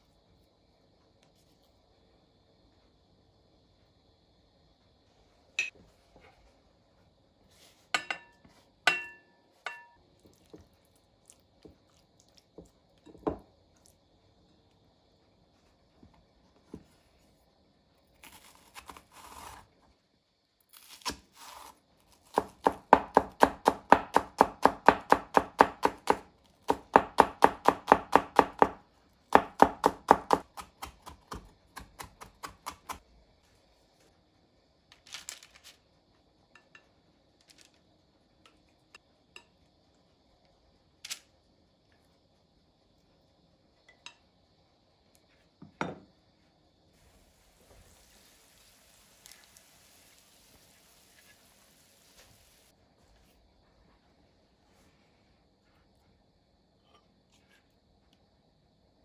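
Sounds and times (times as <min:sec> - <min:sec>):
knife chopping on wooden board: 0:22.2 - 0:33.0.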